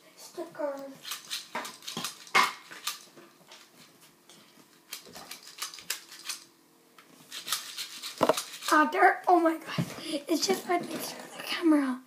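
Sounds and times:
small hard parts clicking: 4.9 - 6.5.

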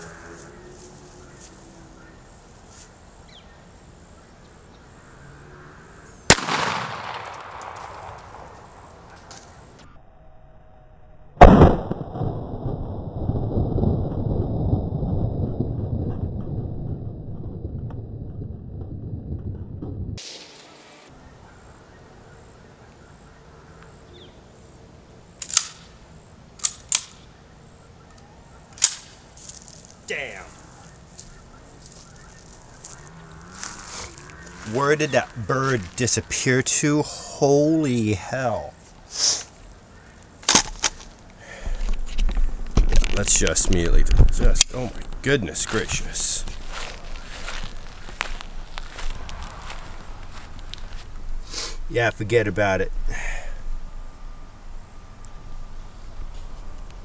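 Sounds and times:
low rushing noise: 4.1 - 23.6, 41.8 - 57.0
shotgun blast with echo: 6.3 - 8.6, 11.4 - 12.4
sharp cracks: 6.3 - 9.6, 11.4 - 12.9, 25.4 - 27.3, 28.7 - 36.6, 39.1 - 51.6.

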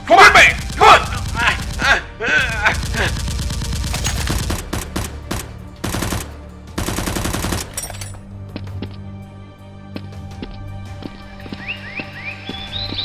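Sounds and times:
background music: 0.0 - 13.0
automatic gunfire bursts: 0.5 - 2.0, 2.7 - 7.7.

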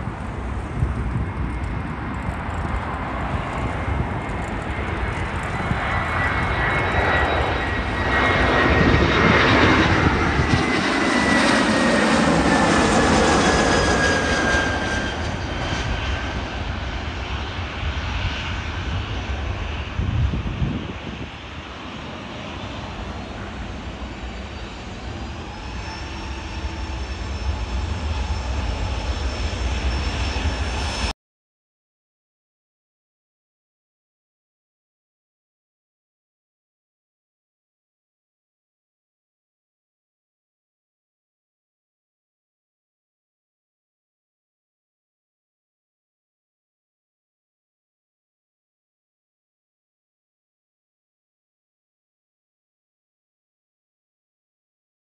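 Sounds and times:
aircraft engine whine: 0.0 - 31.2
jet airliner passing: 0.0 - 31.2.

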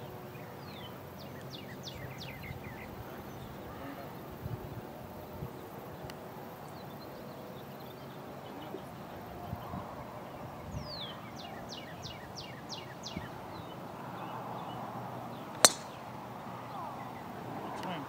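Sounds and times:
golf club striking ball: 15.5 - 16.2.

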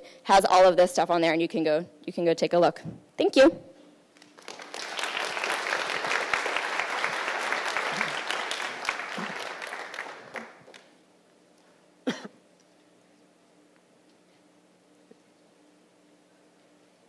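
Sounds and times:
audience applauding: 4.2 - 10.9.

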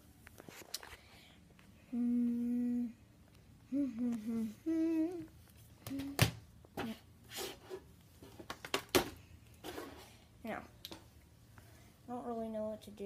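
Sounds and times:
boy humming: 1.8 - 7.0.

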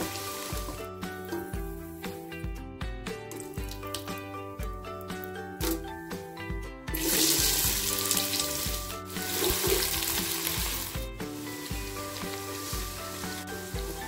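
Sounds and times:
onions sizzling in hot oil: 0.0 - 1.0, 6.9 - 14.0
background music: 0.0 - 14.0.

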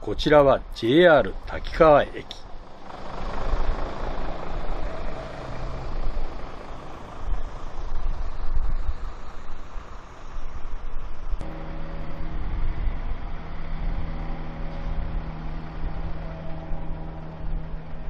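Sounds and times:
low traffic rumble: 0.0 - 18.0
vehicle engine idling: 0.7 - 18.0.

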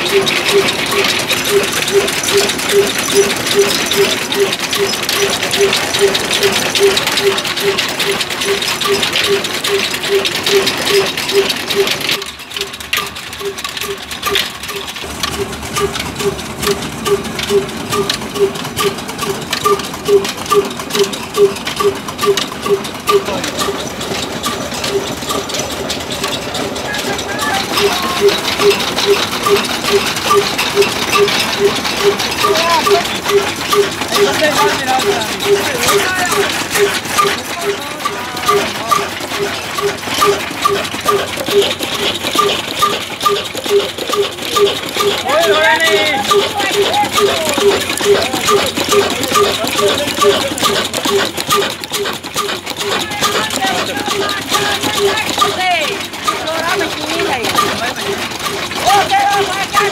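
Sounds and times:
repeating squeak-like note: 0.0 - 12.4, 13.0 - 55.6
diesel engine running: 0.0 - 59.9
mill clicking: 0.0 - 59.9.

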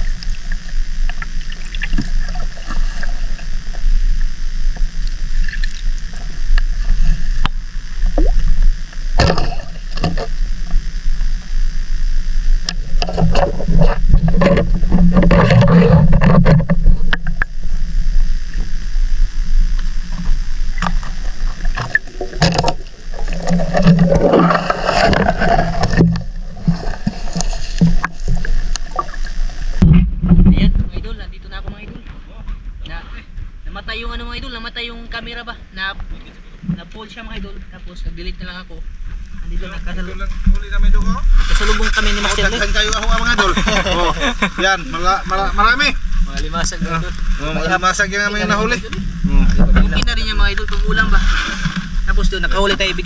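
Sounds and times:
muffled underwater rumble: 0.0 - 53.0
water sloshing: 20.1 - 31.9.

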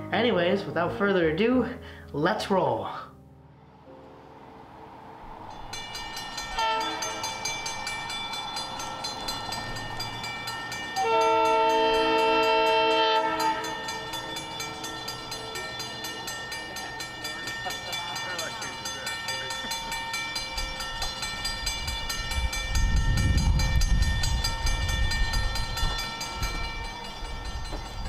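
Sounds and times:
diesel locomotive horn: 6.6 - 7.4, 11.0 - 14.1.

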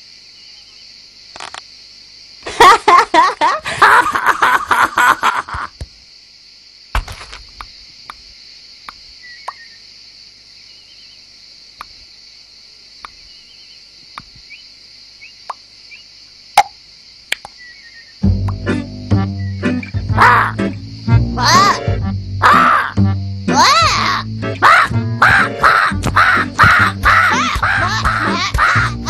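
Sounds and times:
cartoon plops and clicks: 18.4 - 18.7.

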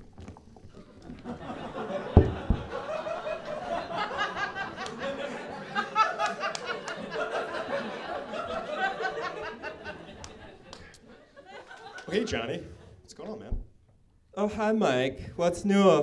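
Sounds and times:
audience laughing and chattering: 1.2 - 12.9
low thumps: 2.0 - 3.3.

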